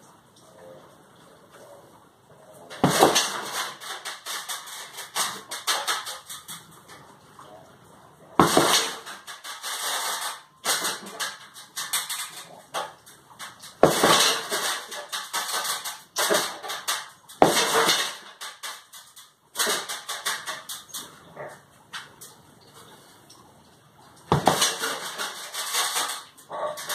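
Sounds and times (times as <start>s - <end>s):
chains and metal frame rattling: 2.6s - 7.0s, 8.4s - 21.2s, 24.3s - 26.9s.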